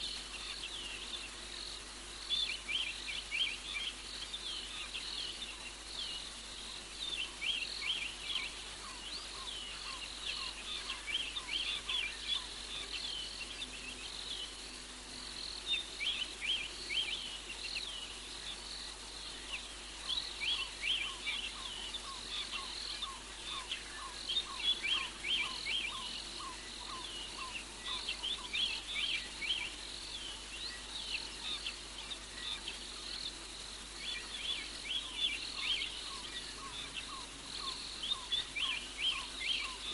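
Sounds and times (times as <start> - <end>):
steady outdoor hiss: 0.0 - 39.9.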